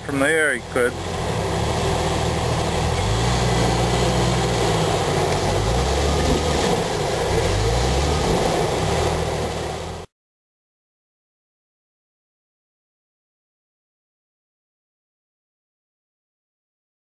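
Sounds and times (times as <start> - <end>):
car engine revving under load: 0.0 - 10.1.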